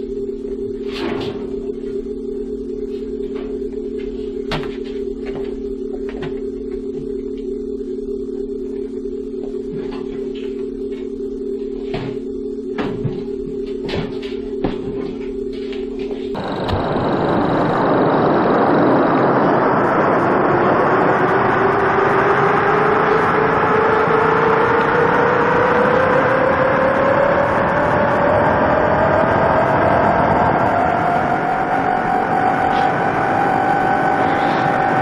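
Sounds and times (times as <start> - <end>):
spaceship engine rising tone: 16.2 - 35.0.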